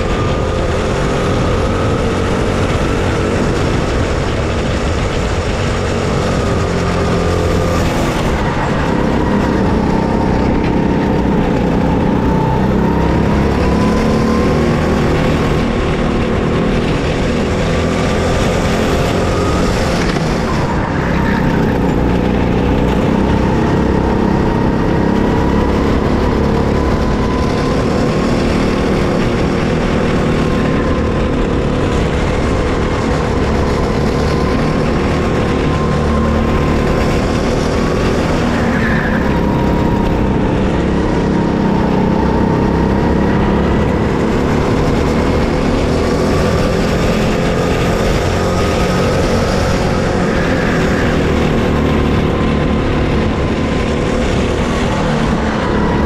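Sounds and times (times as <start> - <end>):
kart engine running: 0.0 - 56.0
wind rush: 0.0 - 56.0.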